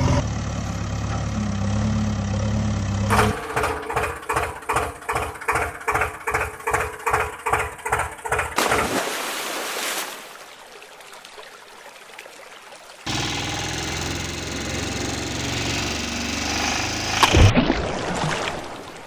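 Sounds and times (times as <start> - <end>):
steady engine sound: 0.0 - 8.6, 13.1 - 17.5
tractor engine chugging: 0.0 - 8.6, 13.1 - 17.2
flowing water rushing: 7.6 - 14.0, 17.2 - 19.0
splash into water: 8.6 - 11.6, 17.2 - 19.0.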